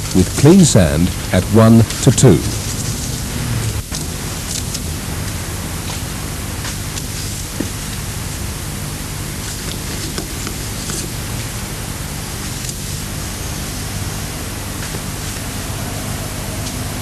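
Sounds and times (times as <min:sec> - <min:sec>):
recording hiss: 0:00.0 - 0:17.0
low hum: 0:11.2 - 0:17.0.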